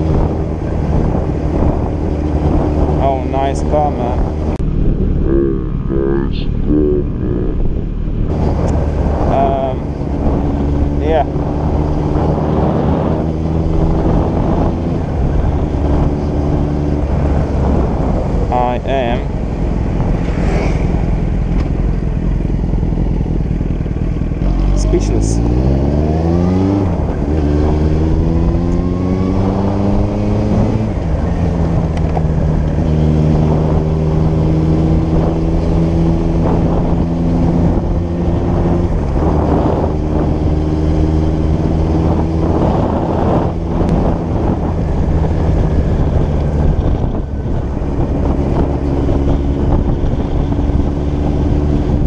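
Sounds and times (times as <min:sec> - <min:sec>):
motorcycle engine accelerating: 0:00.0 - 0:52.0
wind on microphone: 0:00.0 - 0:52.0.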